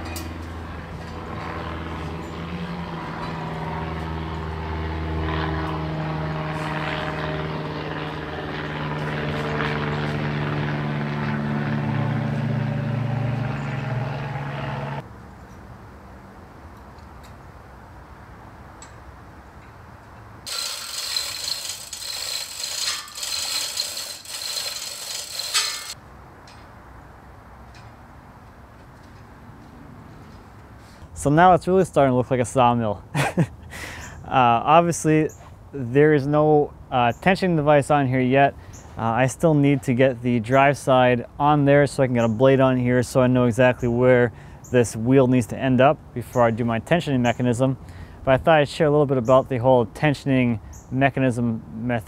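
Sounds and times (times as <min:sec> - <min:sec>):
droning engine hum: 0:00.0 - 0:15.1, 0:20.2 - 0:26.0
harsh uneven rattling: 0:20.5 - 0:26.0.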